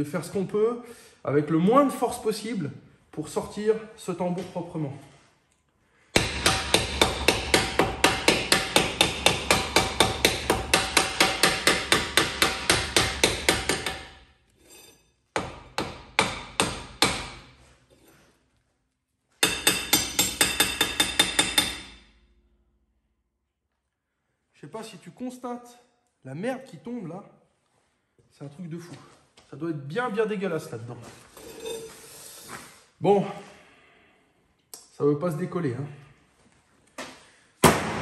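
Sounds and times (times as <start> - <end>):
hammer tapping on brake drum: 6.2 - 14.1, 19.4 - 21.9.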